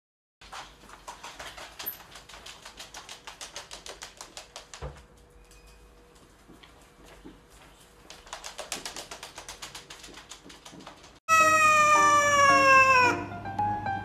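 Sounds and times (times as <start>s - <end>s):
claws clicking on wooden floor: 0.5s - 5.6s, 8.0s - 11.2s.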